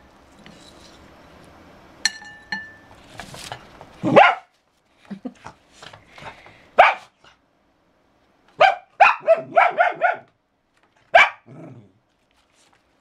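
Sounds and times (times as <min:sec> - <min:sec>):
small dog barking: 0:04.0 - 0:04.5, 0:06.8 - 0:07.2, 0:08.6 - 0:10.3, 0:11.1 - 0:11.7.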